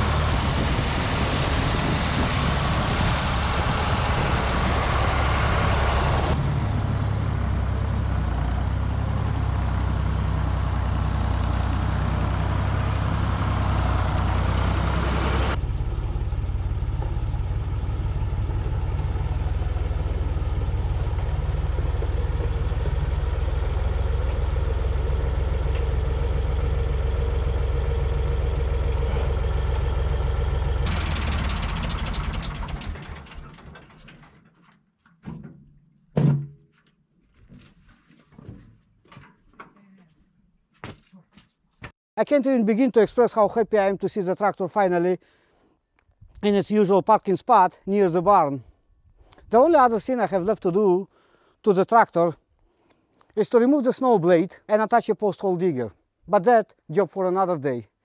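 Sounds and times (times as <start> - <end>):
diesel tractor engine running: 0.0 - 34.2.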